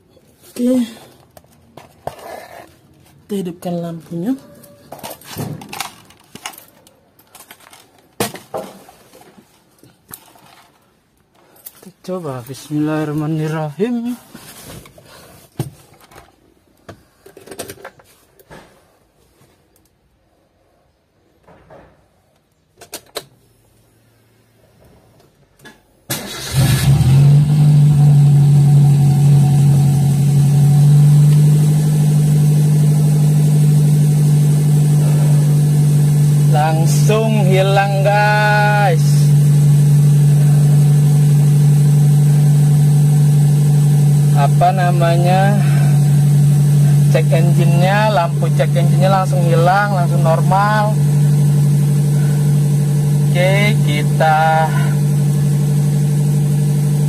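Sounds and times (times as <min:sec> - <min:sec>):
car engine cranking and idling: 0:26.1 - 0:57.0.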